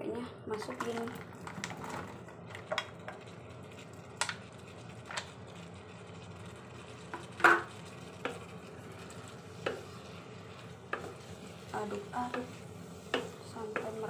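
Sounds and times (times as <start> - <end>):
wooden spatula knocking on pan: 9.6 - 9.9, 10.9 - 11.2, 11.9 - 12.5, 13.1 - 14.0.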